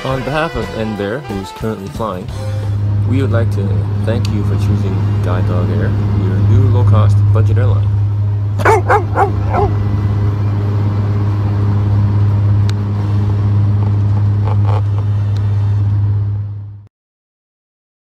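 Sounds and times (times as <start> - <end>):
airliner cabin drone: 0.0 - 16.9
dog barking: 8.6 - 9.8.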